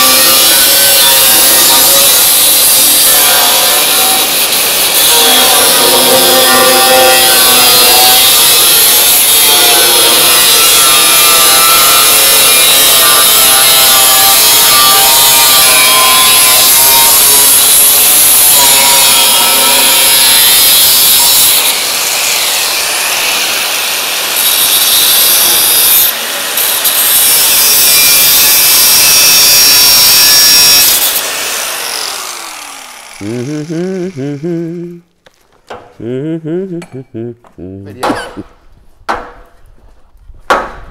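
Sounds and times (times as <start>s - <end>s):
angle grinder cutting steel: 0.0s - 35.0s
grinder disc spinning down: 31.5s - 35.0s.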